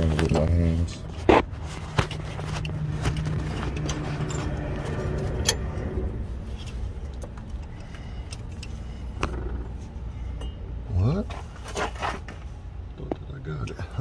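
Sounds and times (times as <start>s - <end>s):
steady low rumble: 0.0s - 14.0s
small metallic clicks and scrapes: 1.3s - 5.9s.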